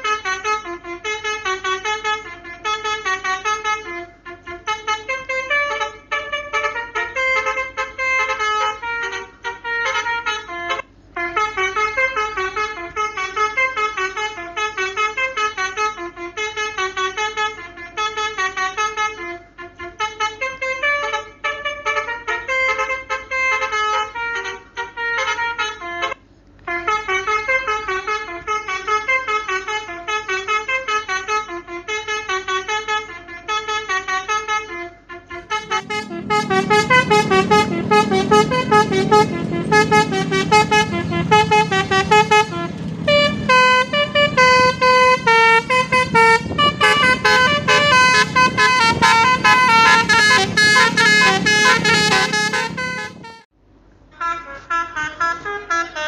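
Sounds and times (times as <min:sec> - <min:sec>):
multi-tone bus horn melodies: 0:00.0 - 0:56.0
low rumble: 0:35.4 - 0:53.2.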